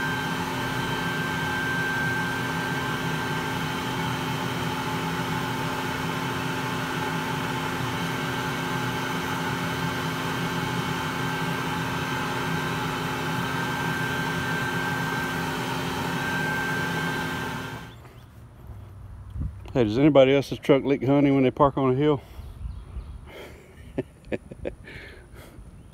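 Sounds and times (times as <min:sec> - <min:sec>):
vacuum motor drone and whine: 0:00.0 - 0:18.1.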